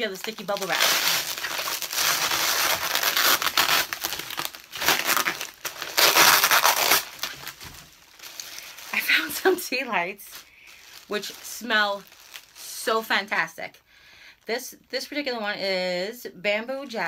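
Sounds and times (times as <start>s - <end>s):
bubble wrap crackling: 0.0s - 12.9s.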